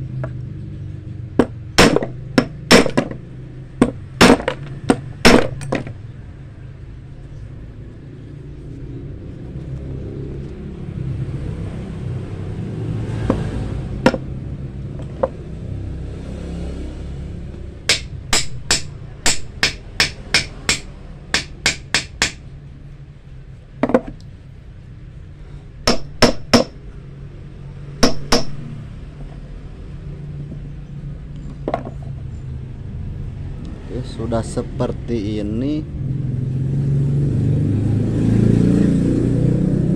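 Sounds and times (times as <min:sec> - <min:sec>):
passing road traffic rumble: 0:00.0 - 0:39.9
hammer tapping wire on steel: 0:01.4 - 0:03.2, 0:03.8 - 0:06.0, 0:17.9 - 0:22.5, 0:25.8 - 0:26.8, 0:28.0 - 0:28.7.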